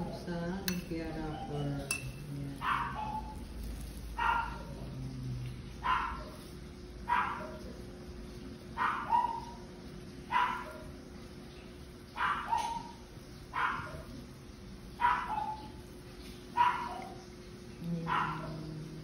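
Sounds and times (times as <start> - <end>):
dog barking: 2.6 - 3.4, 4.1 - 4.8, 5.8 - 6.4, 7.0 - 7.7, 8.8 - 9.6, 10.3 - 10.9, 12.2 - 14.2, 15.0 - 15.8, 16.5 - 17.2, 18.0 - 18.7.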